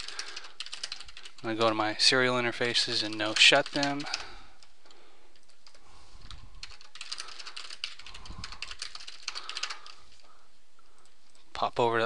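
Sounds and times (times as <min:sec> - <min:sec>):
keyboard typing: 0:00.0 - 0:01.8, 0:02.8 - 0:10.1.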